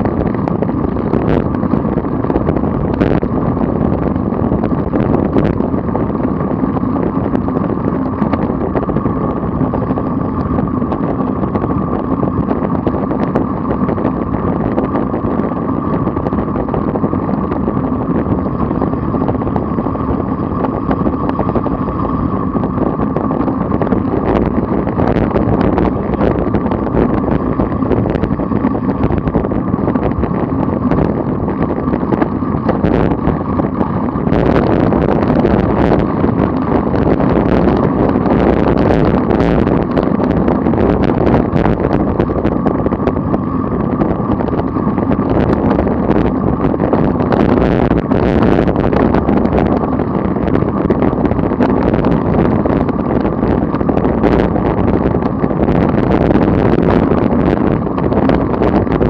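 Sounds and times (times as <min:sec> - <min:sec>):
road noise: 0:00.0 - 0:59.0
rushing wind: 0:00.0 - 0:59.0.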